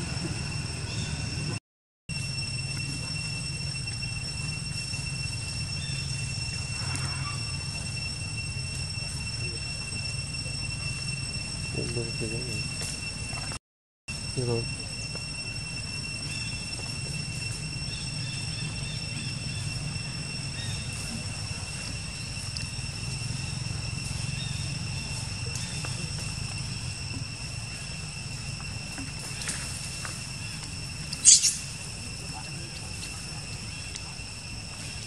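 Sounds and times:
low hum: 0.0 - 35.0
steady high-pitched whine: 0.0 - 35.0.

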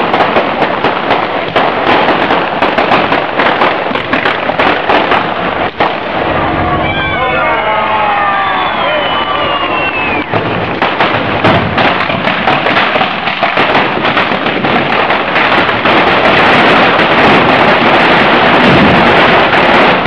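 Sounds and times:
firecrackers banging and crackling: 0.0 - 20.0
falling firework whistle: 6.2 - 11.1.

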